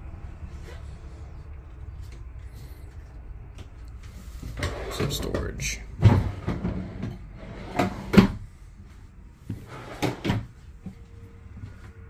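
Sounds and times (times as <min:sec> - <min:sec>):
drawers and doors knocking shut: 0:06.0 - 0:08.4, 0:09.8 - 0:10.5.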